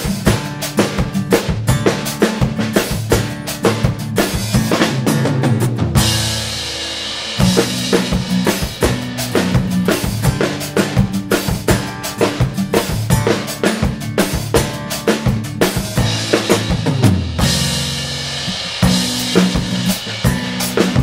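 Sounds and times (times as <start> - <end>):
backing instruments: 0.0 - 21.0
drum kit groove: 0.0 - 21.0
crash cymbal: 6.0 - 8.2.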